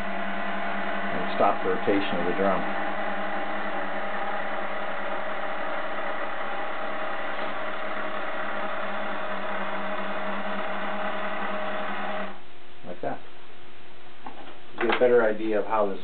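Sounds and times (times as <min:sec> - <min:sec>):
gear motor whirring: 0:00.0 - 0:12.4.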